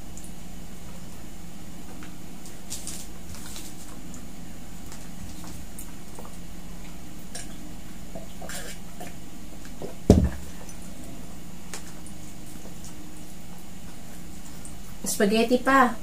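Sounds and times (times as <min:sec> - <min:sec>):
steady low hum: 0:00.0 - 0:16.0
hands rustling food wrappers: 0:02.4 - 0:04.1
glass mug thud on table: 0:10.1 - 0:10.4.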